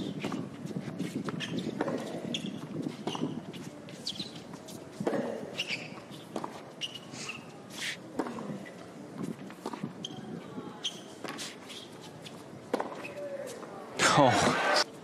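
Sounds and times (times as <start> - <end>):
sneakers squeaking on court: 0.0 - 7.6, 9.6 - 13.3.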